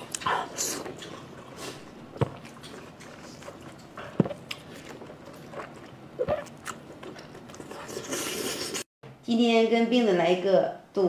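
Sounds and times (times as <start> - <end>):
chewing food: 0.0 - 8.8.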